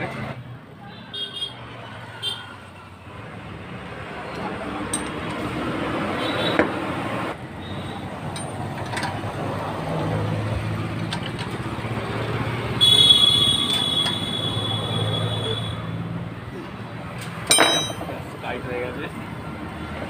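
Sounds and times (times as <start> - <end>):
spanner clinking on metal: 4.3 - 5.4, 8.3 - 9.2, 10.9 - 11.6, 17.4 - 18.2.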